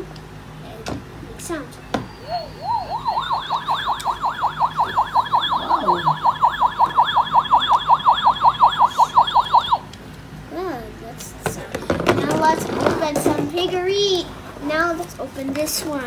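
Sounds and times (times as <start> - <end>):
toy warbling siren sound effect: 2.1 - 9.9.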